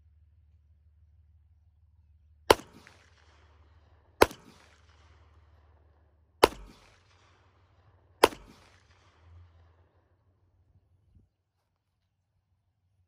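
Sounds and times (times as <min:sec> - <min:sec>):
pistol shots echoing: 0:02.5 - 0:09.9.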